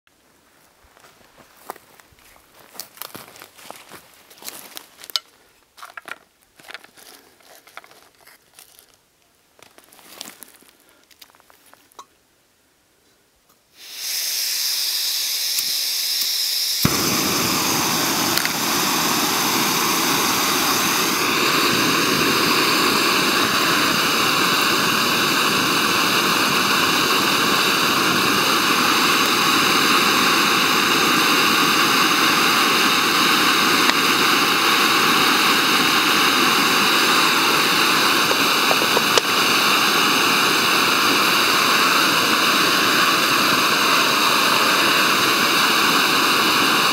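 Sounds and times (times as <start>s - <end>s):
gas hissing from valve: 13.7s - 46.9s
stove burner rushing hiss: 13.7s - 46.9s.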